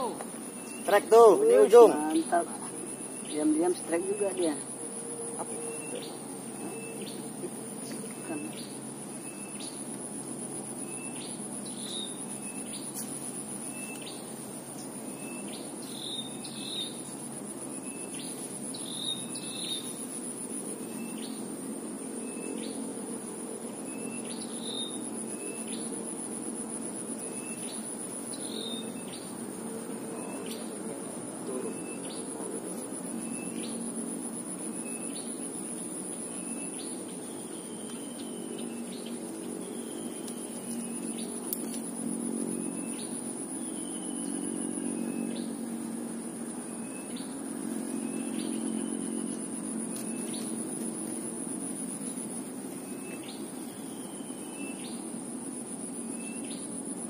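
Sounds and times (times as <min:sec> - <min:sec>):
bird chirping: 0:00.0 - 0:09.9
insects droning: 0:00.0 - 0:57.0.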